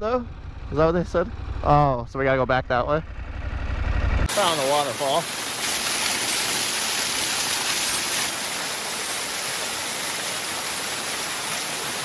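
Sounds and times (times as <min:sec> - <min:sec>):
waterfall rushing: 0:04.3 - 0:12.0.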